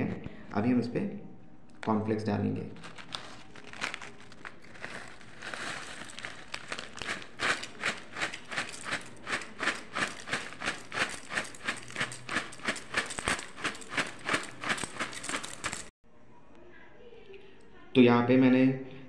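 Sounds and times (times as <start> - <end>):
cereal packet crinkling: 2.8 - 15.9.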